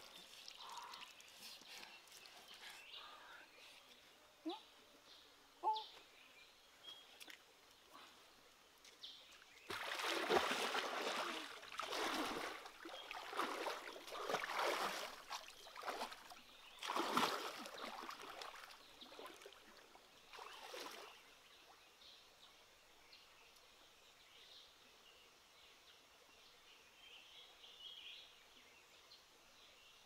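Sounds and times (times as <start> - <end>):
water splashing and sloshing: 8.8 - 21.2.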